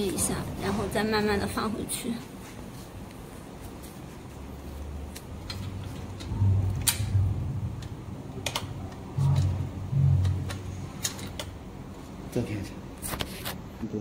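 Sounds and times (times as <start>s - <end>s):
dull low thumps: 6.3s - 8.2s, 9.1s - 10.5s.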